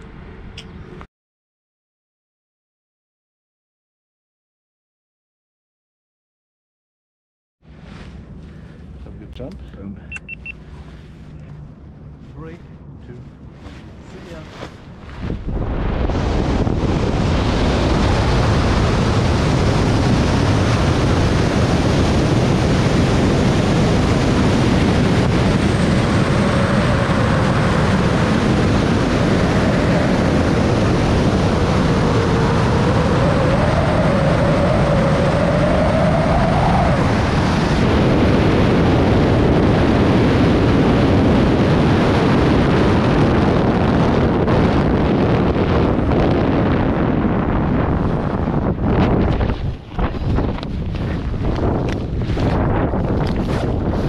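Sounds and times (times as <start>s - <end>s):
faint wavering whistle: 10.1s - 10.6s
wind rushing over microphone: 10.3s - 54.0s.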